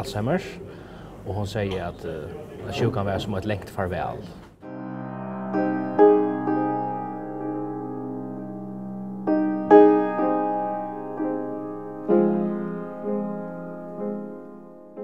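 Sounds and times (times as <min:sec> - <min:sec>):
slow piano music: 0:04.6 - 0:15.0.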